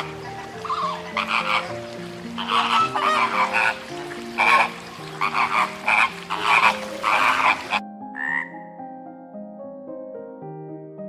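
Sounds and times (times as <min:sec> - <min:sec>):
flamingos honking: 0:00.0 - 0:08.5
soft piano music: 0:00.0 - 0:11.0.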